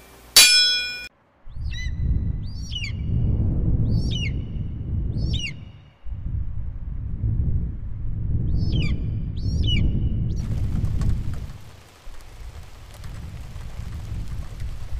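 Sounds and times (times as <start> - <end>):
wind rumble on microphone: 1.4 - 14.9
bird whistling call: 1.6 - 3.1, 5.2 - 6.0.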